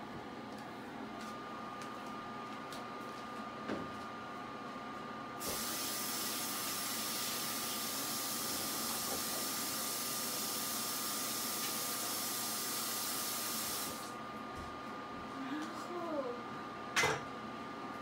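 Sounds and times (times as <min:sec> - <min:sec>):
steady hiss: 0:05.4 - 0:14.1.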